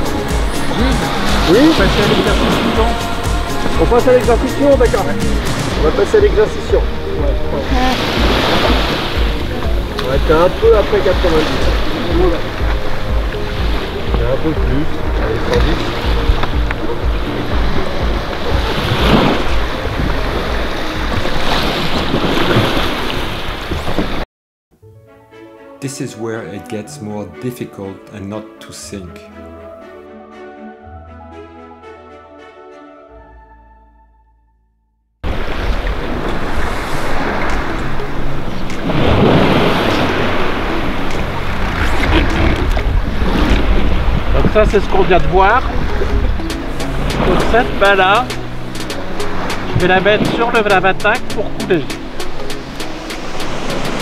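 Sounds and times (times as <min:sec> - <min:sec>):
lapping sea water: 0:00.0 - 0:24.2, 0:35.2 - 0:54.0
water splashing: 0:00.0 - 0:24.2, 0:35.2 - 0:54.0
wind buffeting microphone: 0:35.2 - 0:54.0.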